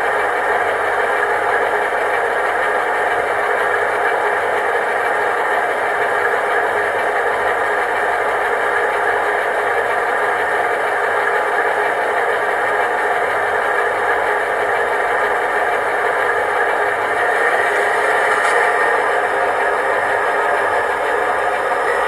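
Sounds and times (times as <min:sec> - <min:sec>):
diesel engine idle from tiny speaker: 0:00.0 - 0:22.0.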